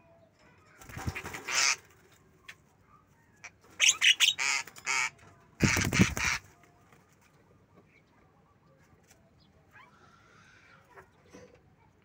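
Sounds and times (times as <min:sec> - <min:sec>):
wings flapping: 0:00.8 - 0:02.0, 0:05.6 - 0:06.6
mynas calling harshly: 0:03.8 - 0:06.4.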